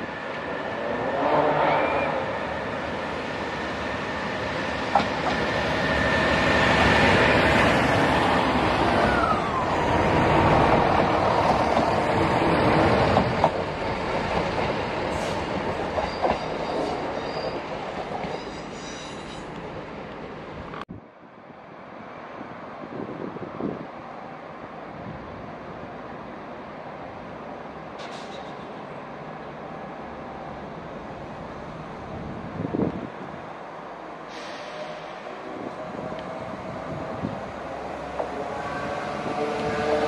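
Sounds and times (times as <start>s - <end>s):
train wheels rumbling on rails: 0.0s - 20.8s, 34.1s - 40.0s
diesel train engines: 0.0s - 40.0s.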